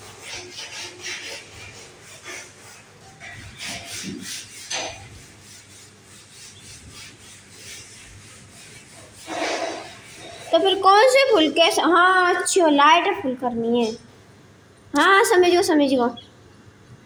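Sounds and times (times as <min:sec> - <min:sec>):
cloth scrubbing metal rack: 0:00.0 - 0:11.9.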